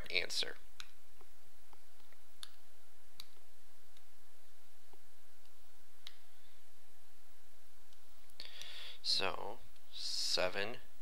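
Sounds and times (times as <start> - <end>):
computer mouse clicks: 3.2 - 4.1.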